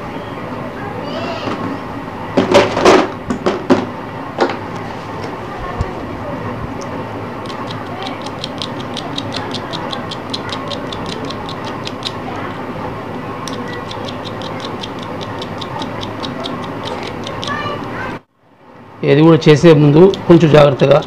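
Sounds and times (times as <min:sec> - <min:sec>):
steady hum: 0:00.0 - 0:21.0
rapid even ticking: 0:07.4 - 0:18.0, 0:19.5 - 0:21.0.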